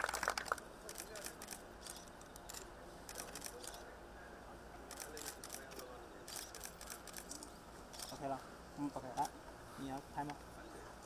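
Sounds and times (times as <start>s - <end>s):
camera shutters clicking: 0.2s - 3.8s, 4.9s - 8.2s.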